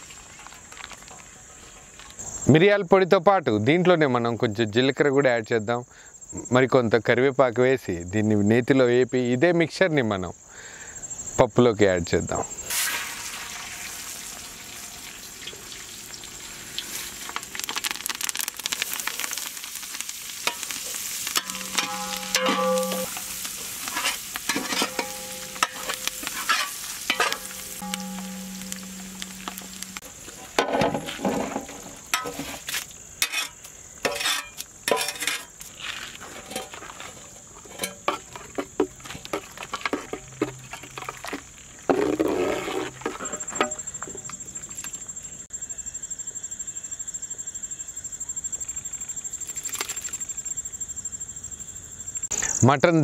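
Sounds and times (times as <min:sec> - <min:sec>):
crickets chirping: 0:00.0 - 0:53.0
spices sizzling in fat: 0:12.6 - 0:44.5
metal spatula scraping pan: 0:20.4 - 0:35.6, 0:36.2 - 0:43.8.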